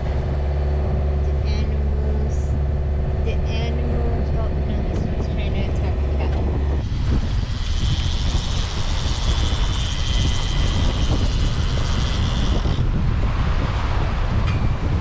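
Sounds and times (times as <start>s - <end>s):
wind noise on microphone: 0.0s - 15.0s
fishing reel clicker buzzing: 6.9s - 12.8s.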